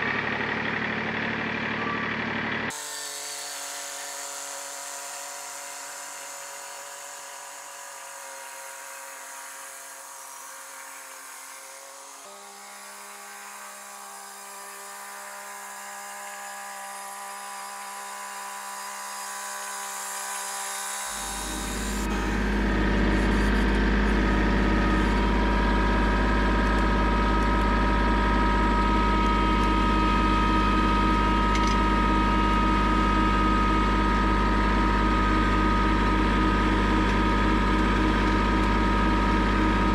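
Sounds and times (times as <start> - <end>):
tractor engine humming: 0.0 - 2.7, 21.0 - 39.9.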